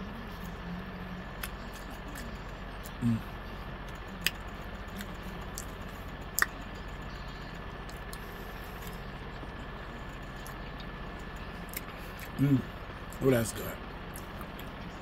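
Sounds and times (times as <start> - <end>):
steady background hum: 0.0 - 15.0
short low vocal sound: 2.9 - 3.4.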